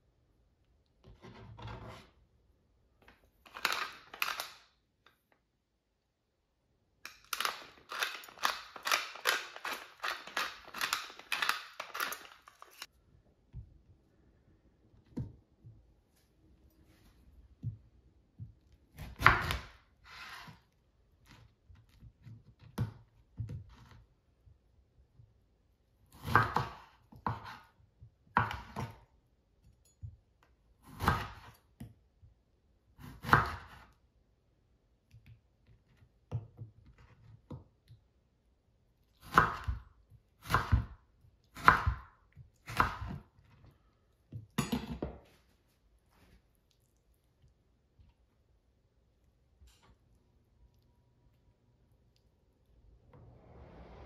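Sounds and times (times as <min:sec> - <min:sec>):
knife chopping on cutting board: 0:18.9 - 0:20.5, 0:26.1 - 0:27.6, 0:28.3 - 0:29.0, 0:30.8 - 0:31.6, 0:33.0 - 0:33.8, 0:39.2 - 0:39.8, 0:40.4 - 0:41.0, 0:41.6 - 0:43.3.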